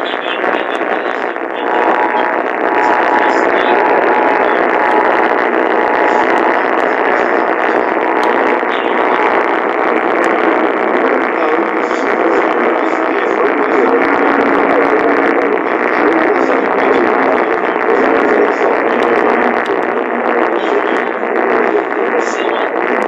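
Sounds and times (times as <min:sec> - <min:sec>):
radio static hiss: 0:00.0 - 0:23.0.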